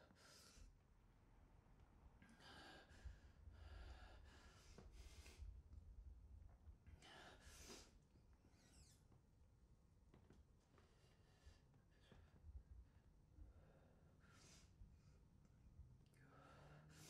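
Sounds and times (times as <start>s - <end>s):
faint breathing and sighs: 0.0s - 0.8s, 2.2s - 5.9s, 6.8s - 9.0s, 10.6s - 17.0s.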